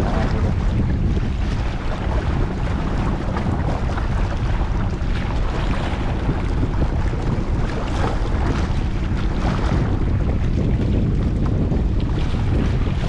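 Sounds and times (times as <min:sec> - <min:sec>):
waves splashing against rocks: 0:00.0 - 0:10.3
wind buffeting microphone: 0:00.0 - 0:13.0.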